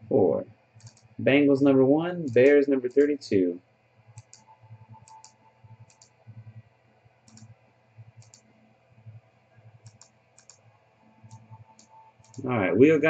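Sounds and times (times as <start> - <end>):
computer mouse double clicks: 0.8 - 1.1, 4.2 - 6.1, 7.3 - 7.5, 8.2 - 8.4, 9.8 - 10.6.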